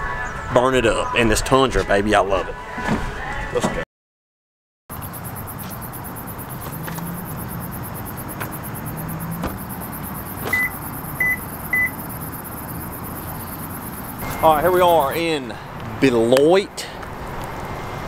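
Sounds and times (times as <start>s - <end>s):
short high electronic beeps: 9.8s - 15.2s.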